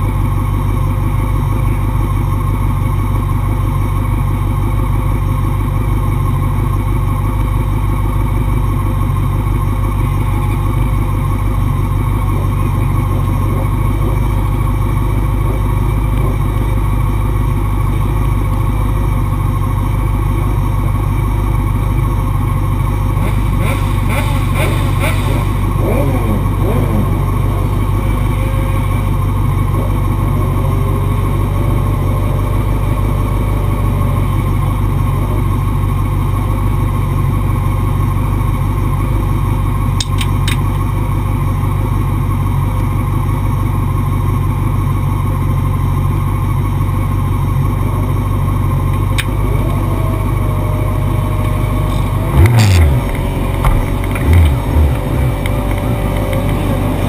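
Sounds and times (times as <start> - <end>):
racing motorcycle engine: 0.0 - 57.0
low rushing rumble: 49.3 - 57.0
heavy low thumps: 51.3 - 57.0.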